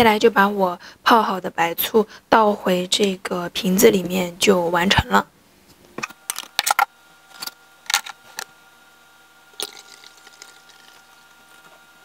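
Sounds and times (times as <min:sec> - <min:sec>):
liquid trickling through funnel: 0:09.6 - 0:11.6.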